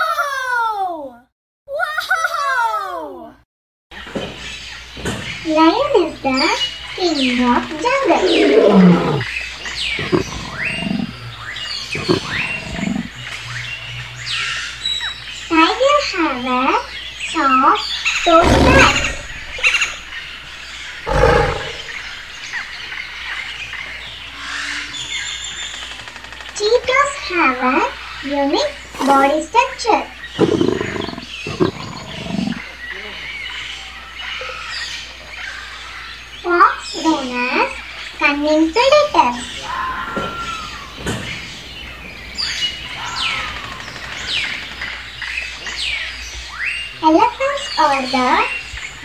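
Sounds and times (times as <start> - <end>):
birds whistling chirps: 4.0 - 49.0
faint chirps: 6.2 - 27.3
tiger growling: 7.4 - 13.2, 18.1 - 22.6, 30.3 - 32.8.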